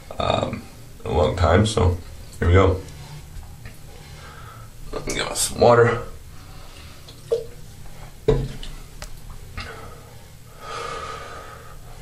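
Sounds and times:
man breathing and sniffing: 2.8 - 4.8, 9.6 - 12.0.

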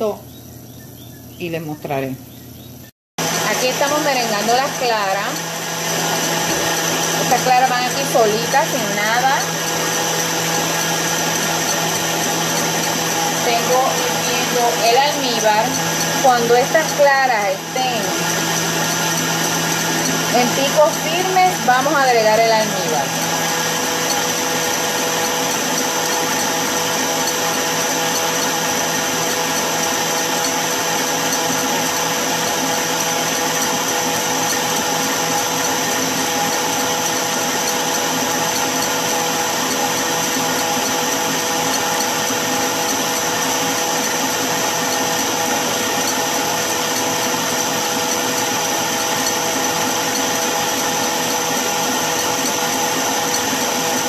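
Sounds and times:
stand mixer motor whine: 3.2 - 54.0.

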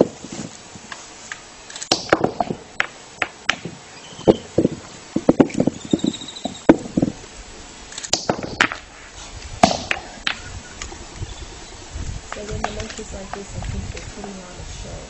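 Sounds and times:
bird warbling call: 3.9 - 4.6, 5.6 - 6.7, 10.0 - 11.9.

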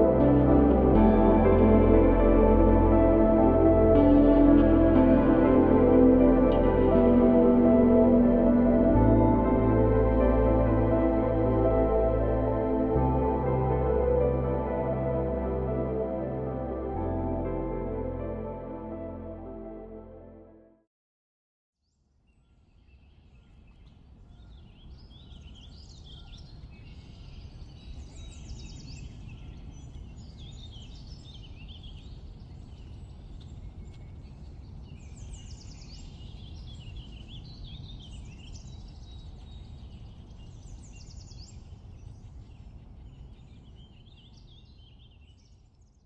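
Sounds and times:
steady low rumble: 0.0 - 20.3
songbirds singing and chirping: 22.9 - 45.6.

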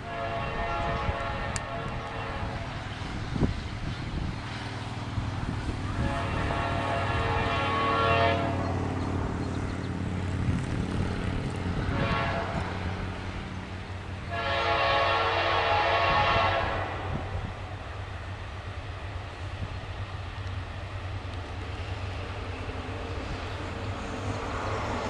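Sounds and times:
distant locomotive air horn: 0.0 - 2.8, 5.9 - 8.8, 11.8 - 12.9, 14.2 - 17.6
low train rumble: 0.0 - 25.0.

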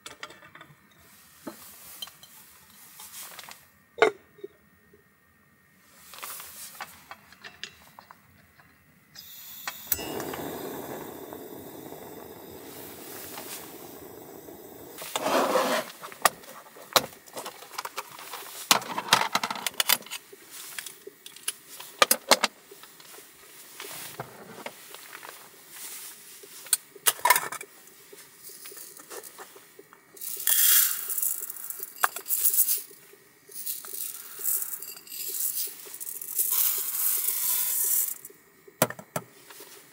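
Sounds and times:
steady hiss: 0.9 - 4.0, 4.8 - 39.9
dry rice rattling: 10.0 - 16.2, 30.2 - 38.3.

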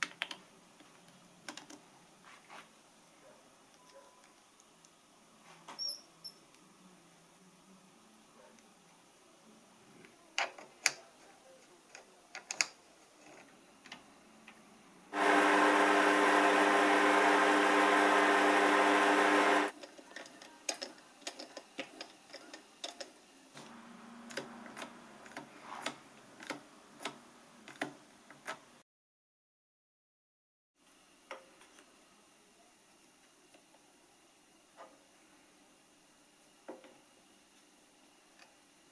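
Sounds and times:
lathe motor humming: 15.2 - 19.7.

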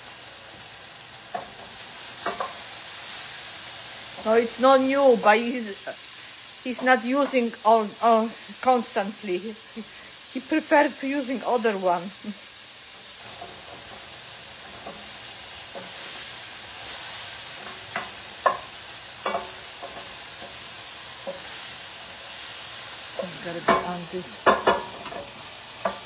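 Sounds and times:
meat sizzling in oil: 0.0 - 26.0
wooden spoon scraping a pan: 12.9 - 26.0.

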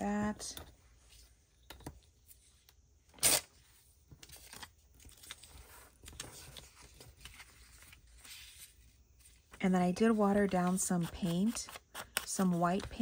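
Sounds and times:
paper rustling: 3.7 - 9.6.

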